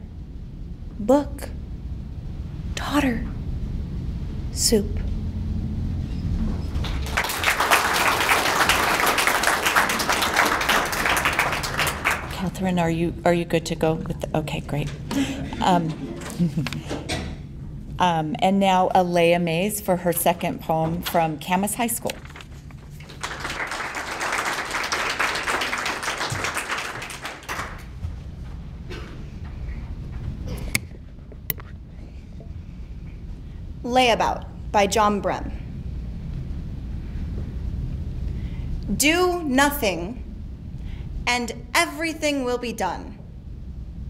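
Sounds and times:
audience applauding: 6.8s - 12.4s, 22.9s - 28.0s.

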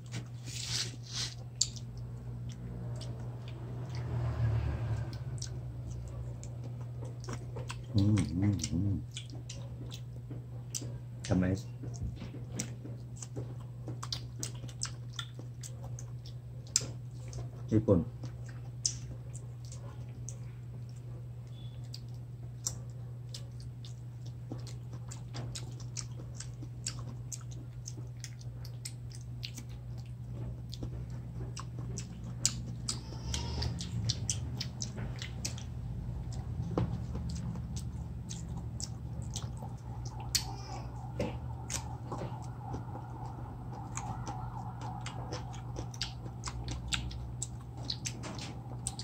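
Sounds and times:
people chewing: 0.0s - 49.0s
steady low hum: 0.0s - 49.0s.

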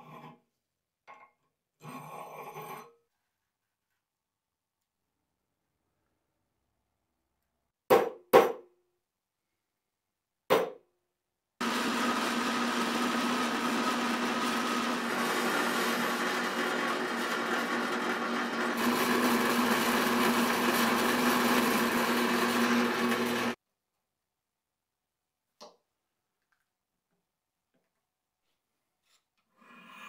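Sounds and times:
electric drill boring through steel: 11.6s - 23.6s.

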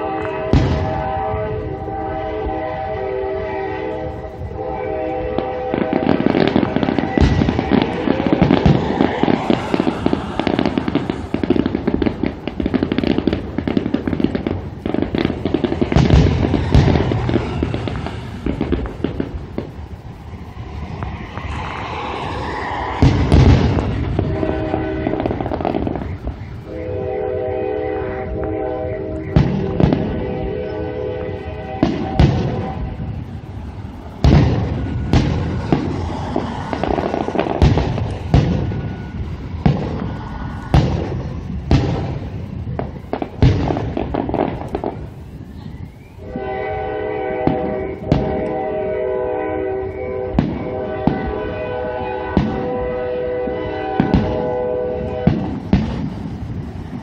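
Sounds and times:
fireworks booms: 0.0s - 2.9s, 4.0s - 27.1s, 28.2s - 46.5s, 47.3s - 48.9s, 49.9s - 57.0s
multi-tone horn blowing: 0.0s - 8.8s, 23.6s - 26.0s, 26.6s - 33.2s, 46.2s - 55.6s
fireworks crackling: 0.0s - 57.0s.

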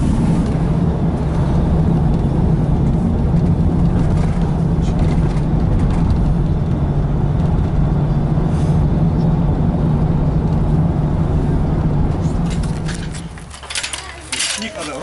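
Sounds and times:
car driving on highway: 0.0s - 15.0s.

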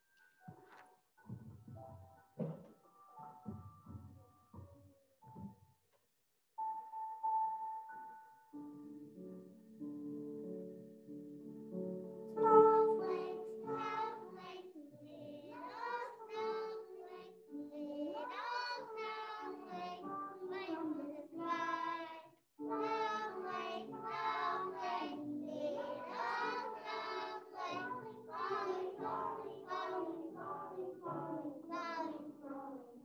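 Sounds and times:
children singing: 12.4s - 33.0s.

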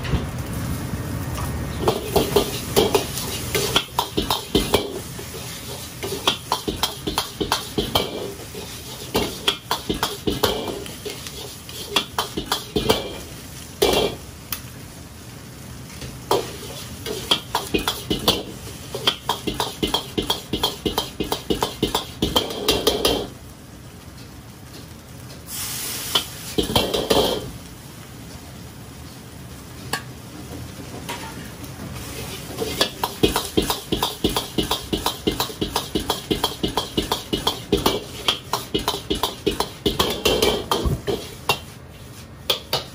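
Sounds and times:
rice sizzling: 0.0s - 42.9s
loud hiss: 25.5s - 26.6s.

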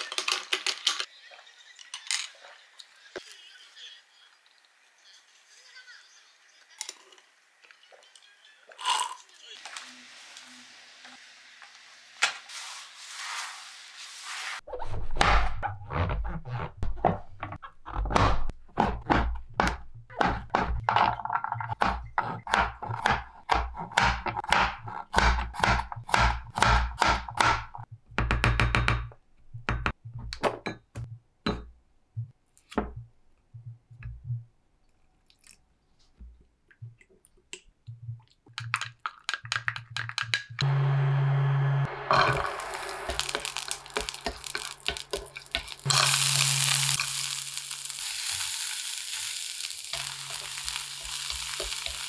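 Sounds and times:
knife chopping on cutting board: 21.8s - 27.6s.

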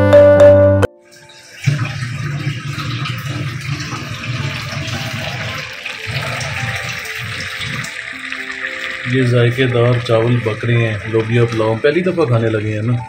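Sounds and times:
pot boiling and bubbling: 1.1s - 13.0s.

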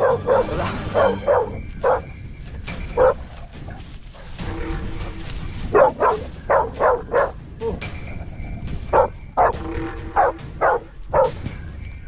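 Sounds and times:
dog barking: 0.0s - 2.1s, 3.0s - 3.2s, 5.7s - 7.4s, 8.9s - 11.4s.

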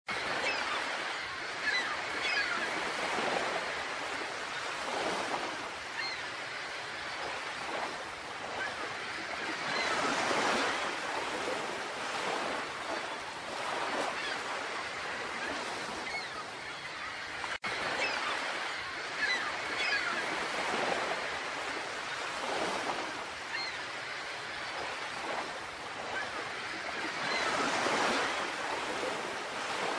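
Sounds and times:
small waves washing onto beach: 0.1s - 29.9s.

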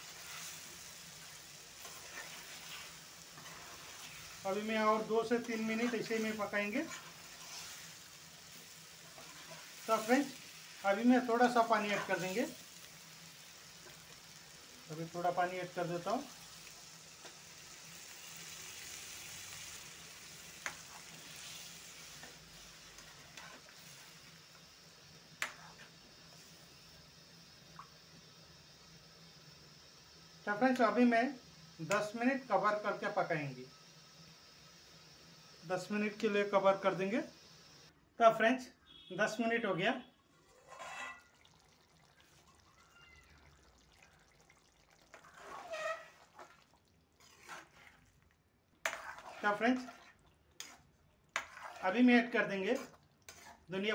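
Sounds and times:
wooden spatula stirring: 0.0s - 12.6s, 20.6s - 24.1s, 40.3s - 41.6s, 44.8s - 53.9s
curry sizzling in a pan: 0.0s - 37.9s, 39.2s - 53.9s.

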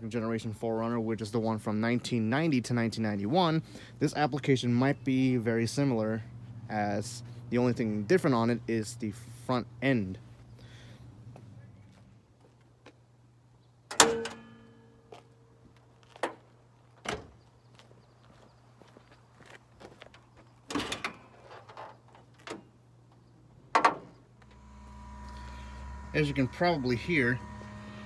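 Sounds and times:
car hood metallic clunk: 13.9s - 14.8s, 23.7s - 24.2s
faint steady hum: 21.5s - 28.0s
knocks and clunks: 23.7s - 24.2s.

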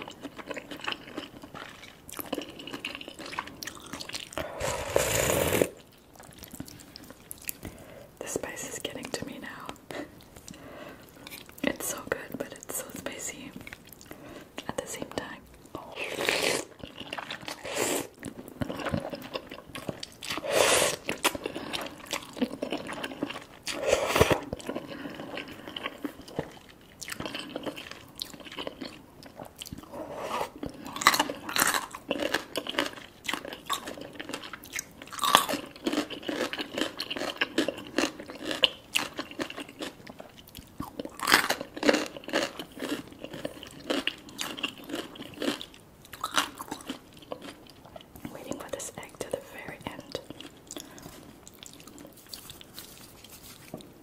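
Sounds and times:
chewing and mouth sounds: 0.0s - 5.1s, 5.7s - 54.0s
noodle slurping: 4.4s - 5.8s, 16.0s - 19.4s, 20.2s - 22.2s.

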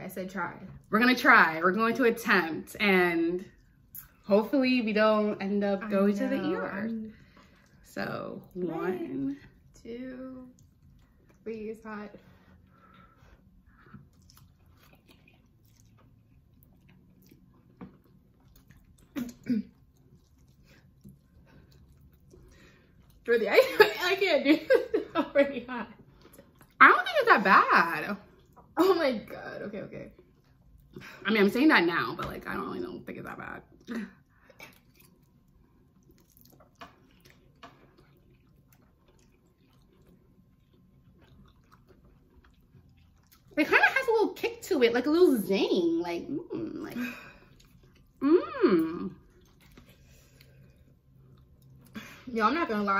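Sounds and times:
people slurping and chewing noodles: 6.1s - 23.3s, 33.7s - 44.0s, 46.8s - 52.2s.

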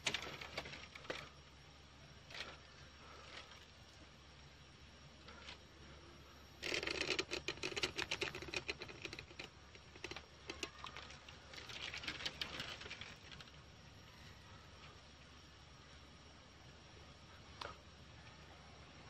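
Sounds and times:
dry grass rustling and crackling: 6.6s - 13.6s.

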